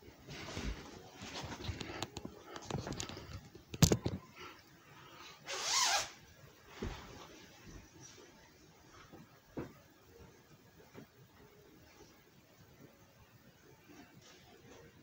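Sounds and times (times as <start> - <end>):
phone handling rustling and clicks: 1.6 - 4.2.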